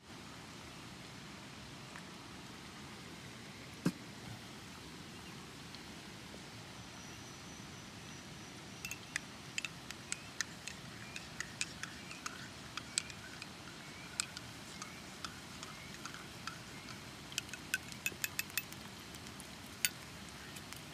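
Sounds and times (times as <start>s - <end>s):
spoon clinking in a ceramic mug: 8.8s - 20.9s.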